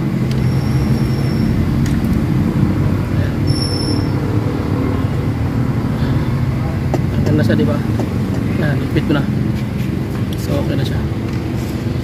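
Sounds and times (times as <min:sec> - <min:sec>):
high-pitched squeaks: 0:00.4 - 0:01.8, 0:03.4 - 0:04.2.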